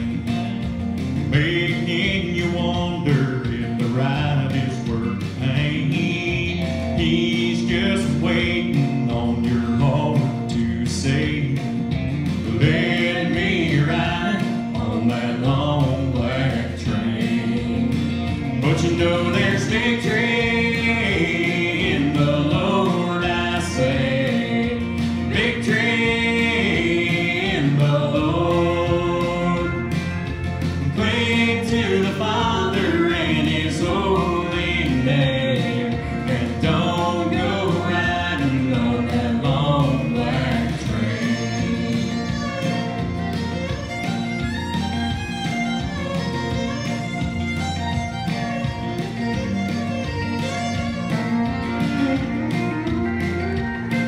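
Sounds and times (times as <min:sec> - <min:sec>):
instrumental backing music: 0:00.0 - 0:54.0
man and boy singing: 0:01.3 - 0:11.8, 0:12.4 - 0:30.1, 0:30.8 - 0:42.4.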